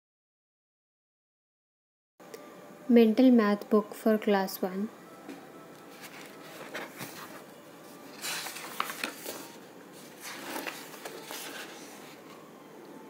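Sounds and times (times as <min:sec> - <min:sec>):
paper pages rustling: 0:05.8 - 0:12.4.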